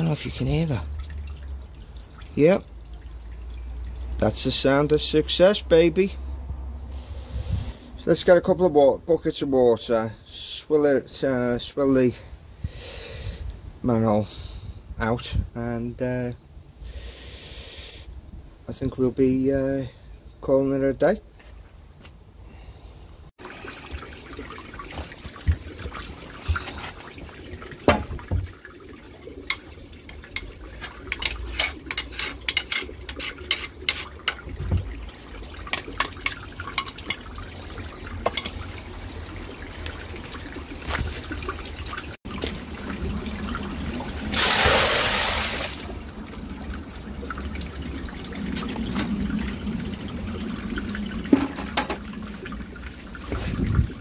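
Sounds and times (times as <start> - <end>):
water trickling through drain: 0.0 - 5.3, 23.4 - 54.0
rush of water: 23.4 - 54.0.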